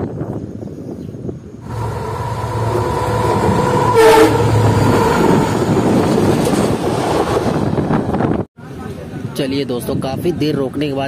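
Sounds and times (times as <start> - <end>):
train rumbling on track: 1.3 - 9.3
train horn: 1.7 - 5.6.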